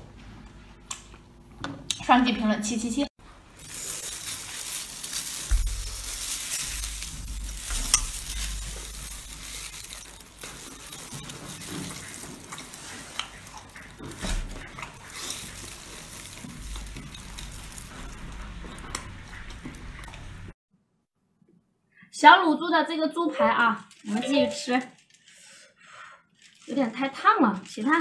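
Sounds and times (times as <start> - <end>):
sharp clicks and snaps: 0.9 - 1.2
wet crackling and squelching: 3.6 - 20.6.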